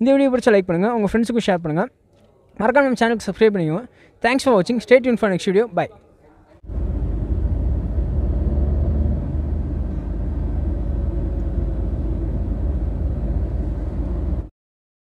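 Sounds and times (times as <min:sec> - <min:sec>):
car interior road noise: 0:06.7 - 0:14.5.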